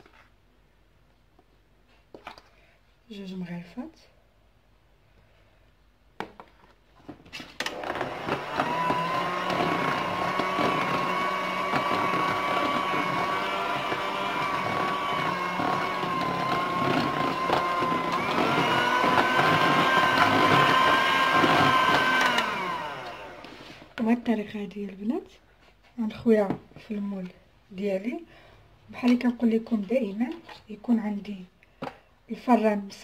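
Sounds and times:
electric hand mixer whining: 7.6s - 24.0s.

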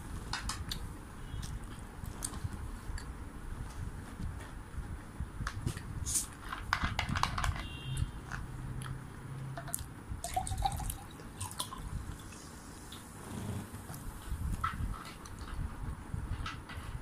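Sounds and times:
plastic bottle clicking and crackling: 6.5s - 7.7s
small liquid sounds: 9.7s - 13.0s.

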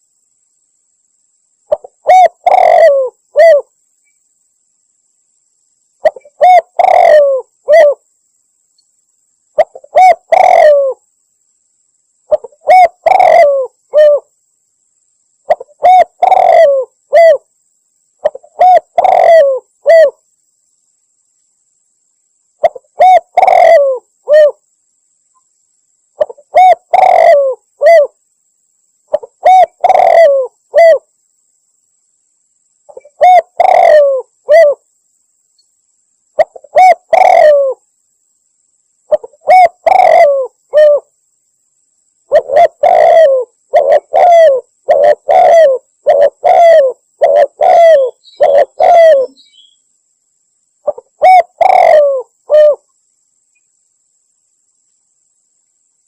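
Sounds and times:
dove low falling coos: 1.7s - 3.8s, 6.0s - 8.1s, 9.5s - 11.1s, 12.3s - 14.3s, 15.4s - 17.5s, 18.2s - 20.2s, 22.6s - 24.6s, 26.2s - 28.2s, 29.1s - 31.1s, 32.9s - 34.9s, 36.4s - 37.8s, 39.1s - 41.1s, 42.3s - 49.4s, 50.8s - 52.9s.

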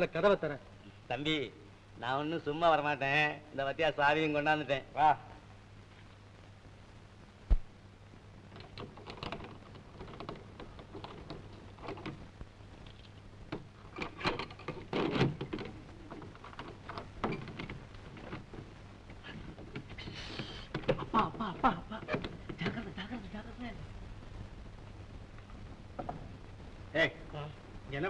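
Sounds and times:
padlock and bolt rattling: 8.5s - 12.2s, 12.9s - 18.6s.

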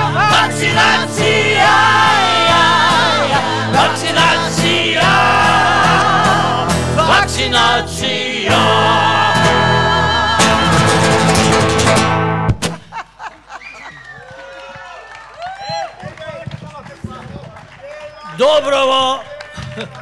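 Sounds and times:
voices singing in harmony: 0.0s - 11.5s.

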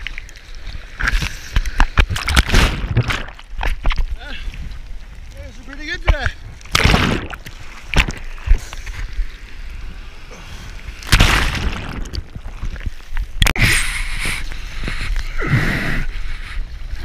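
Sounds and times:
seawater sloshing and splashing: 10.8s - 13.4s.

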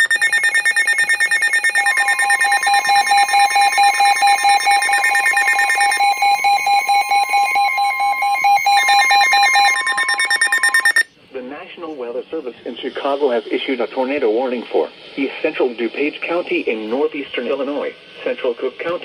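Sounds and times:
steady high warning tone: 0.0s - 11.1s
weather radios rapid beeping: 0.0s - 11.1s.

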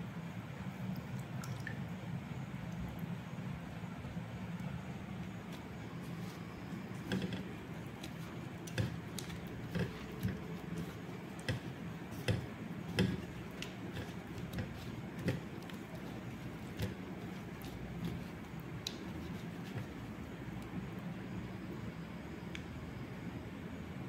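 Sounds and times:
soft taps and pats in flour: 5.2s - 20.8s.

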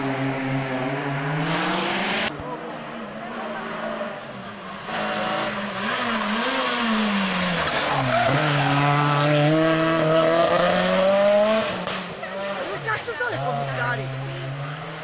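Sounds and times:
rally car engine revving: 0.0s - 15.0s
tyre squeal on tarmac: 4.8s - 9.2s.

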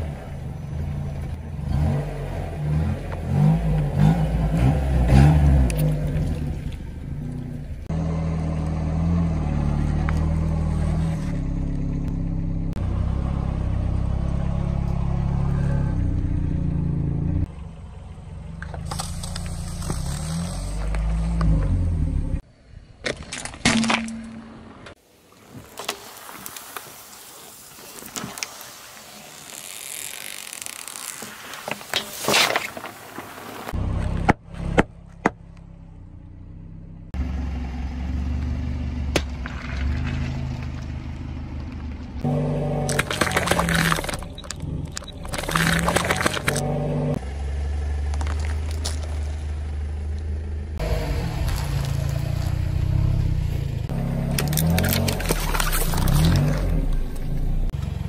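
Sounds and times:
car engine humming: 0.0s - 22.9s, 28.5s - 58.0s
drink squirting hiss: 25.6s - 32.6s
plastic bottle crackling and crunching: 29.3s - 33.6s, 42.9s - 46.6s, 54.4s - 57.0s.

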